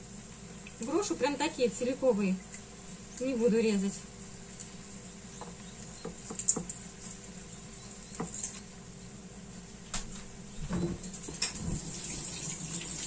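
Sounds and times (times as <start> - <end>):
garlic skins crackling: 0.0 - 9.0
faint steady hum: 0.0 - 13.0.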